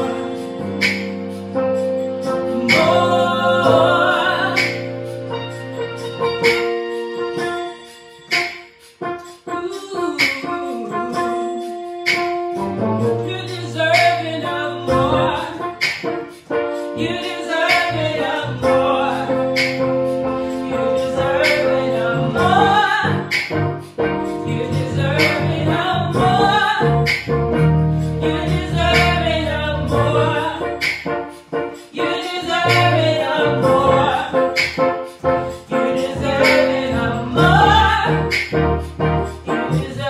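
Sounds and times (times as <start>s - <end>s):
keyboard chords and bass: 0.0s - 40.0s
woman singing lead: 2.5s - 5.1s, 9.5s - 12.3s, 13.1s - 15.9s, 17.0s - 19.8s, 20.6s - 23.6s, 24.3s - 27.2s, 28.2s - 30.9s, 31.9s - 34.8s, 35.7s - 38.6s, 39.4s - 40.0s.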